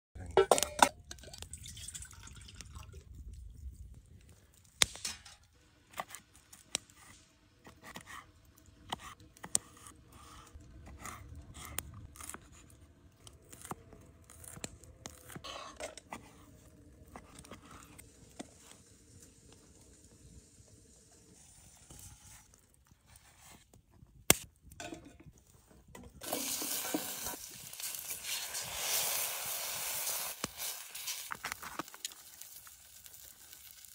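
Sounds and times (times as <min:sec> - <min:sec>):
metal pots and utensils clanking: 0:00.2 - 0:01.4, 0:24.8 - 0:25.4.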